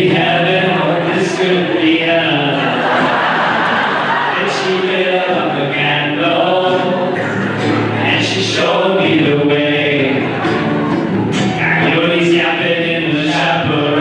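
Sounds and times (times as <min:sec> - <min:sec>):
choir singing: 0:00.0 - 0:11.2.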